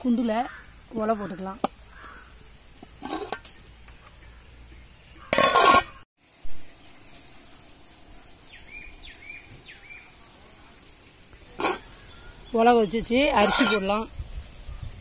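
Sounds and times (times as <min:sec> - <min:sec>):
pot and lid clattering: 0:05.3 - 0:06.0.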